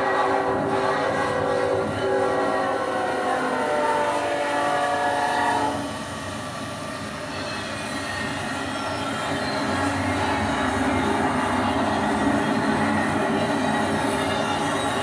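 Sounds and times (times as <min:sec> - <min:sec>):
model train horn: 0:00.0 - 0:05.9.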